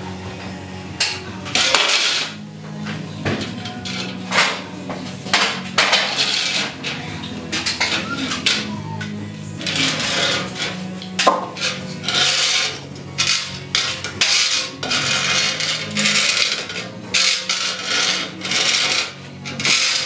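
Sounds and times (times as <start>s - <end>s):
hand saw cutting wood: 5.4s - 8.8s, 9.6s - 20.0s.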